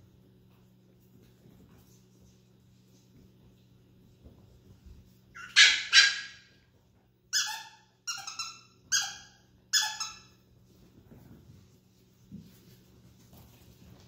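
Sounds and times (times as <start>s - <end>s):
high-pitched puppy yips: 5.3s - 6.6s, 7.3s - 10.4s
puppies barking: 5.3s - 6.6s.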